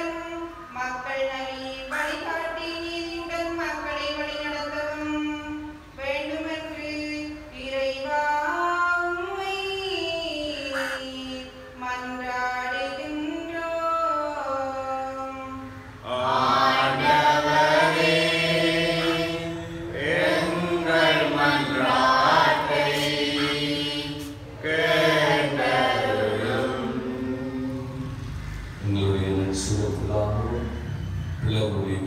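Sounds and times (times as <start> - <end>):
solo voice chanting: 13.8 - 32.0
choir chanting: 16.0 - 31.0.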